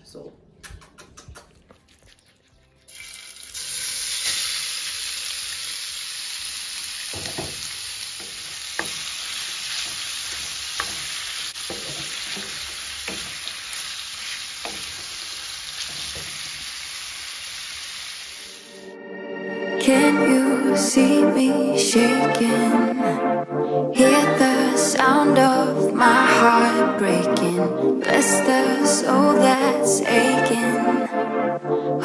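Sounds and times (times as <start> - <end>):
chicken sizzling in hot oil: 2.9 - 18.7
wooden spoon knocking on pan: 7.1 - 9.1, 9.8 - 13.5.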